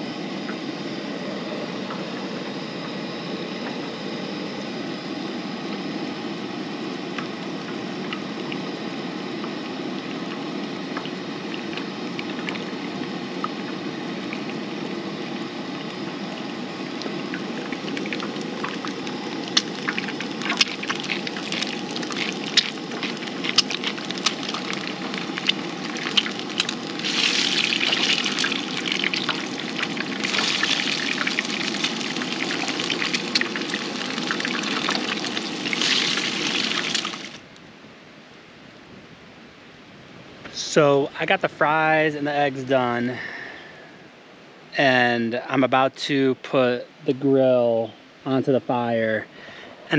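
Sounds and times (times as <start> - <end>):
camp stove burner rushing: 11.1 - 37.4
eggs sizzling in oil: 14.2 - 37.4
spatula working eggs: 15.3 - 37.4.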